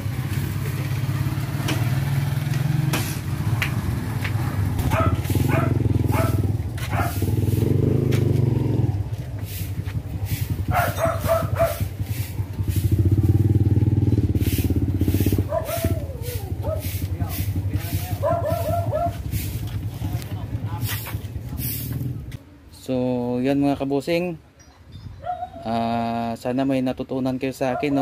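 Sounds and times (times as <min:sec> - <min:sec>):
motorcycle engine running: 0:00.0 - 0:22.3.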